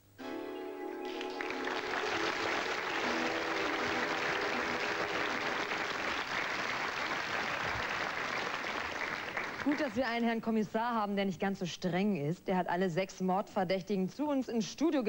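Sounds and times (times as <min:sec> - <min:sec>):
music cue: 0:00.1 - 0:06.3
studio audience applauding: 0:01.0 - 0:10.2.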